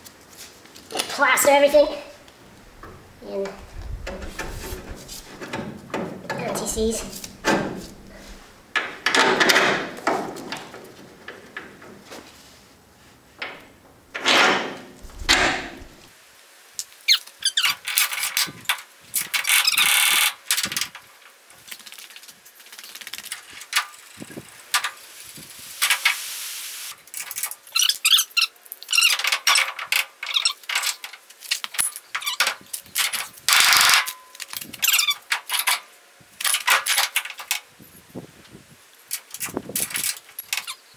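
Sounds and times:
metal parts clinking and knocking: 39.1 - 40.8.

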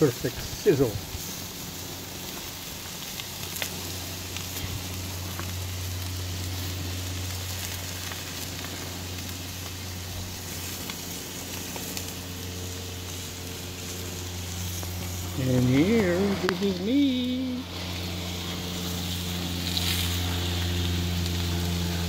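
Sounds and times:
steaks sizzling on a grill: 0.0 - 22.0
low hum: 0.9 - 22.0.

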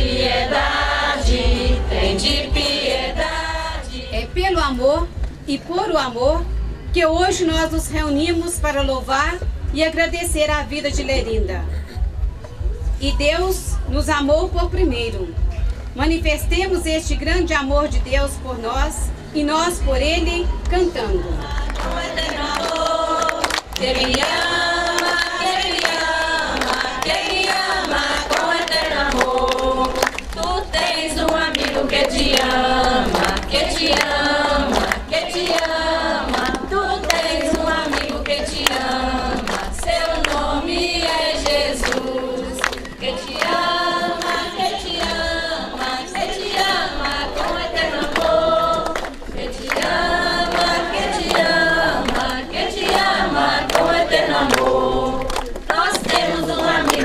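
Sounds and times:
congregation singing a hymn: 0.0 - 4.3, 21.1 - 57.0
hand claps: 21.4 - 57.0.

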